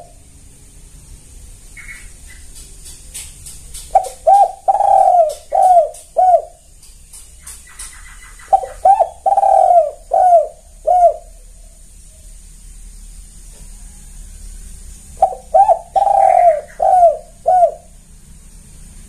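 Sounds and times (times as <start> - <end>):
dove cooing: 0.0 - 0.3, 3.4 - 6.7, 7.5 - 12.3, 15.1 - 18.1.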